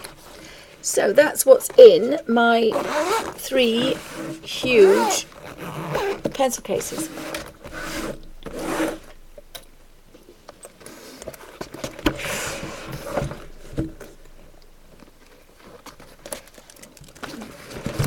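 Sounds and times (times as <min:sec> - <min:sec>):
fabric rustle: 0:01.6 - 0:09.2.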